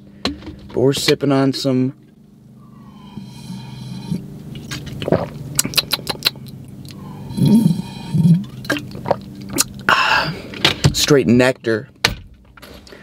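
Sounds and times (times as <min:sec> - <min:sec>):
low car cabin hum: 0:00.0 - 0:13.0
loud gulps: 0:02.6 - 0:10.4.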